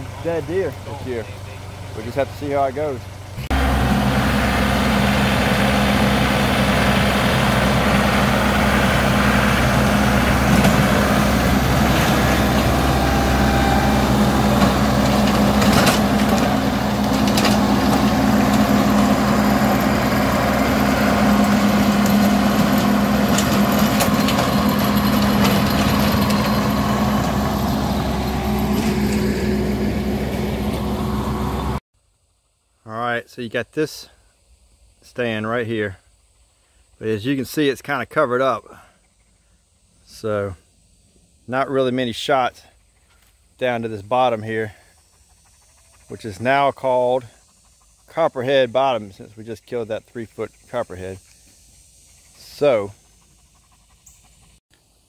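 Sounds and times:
tractor diesel engine running: 0.0 - 31.8, 52.3 - 54.6.

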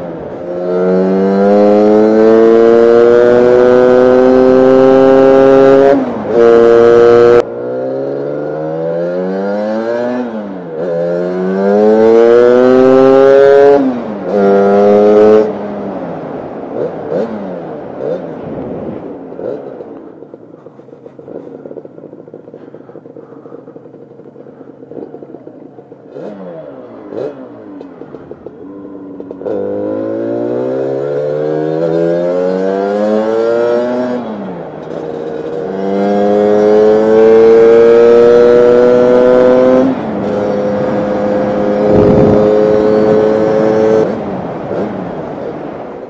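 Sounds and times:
scooter engine accelerating: 0.0 - 46.0.

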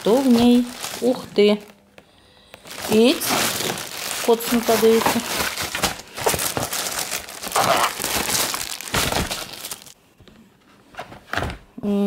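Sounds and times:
plastic mailer bag crinkling: 0.0 - 1.7, 2.6 - 10.0.

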